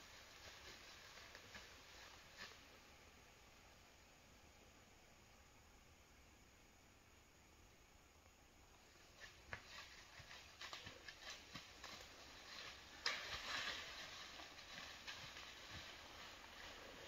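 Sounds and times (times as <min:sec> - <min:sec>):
rustling through brush: 0:00.0 - 0:03.0, 0:08.8 - 0:17.0.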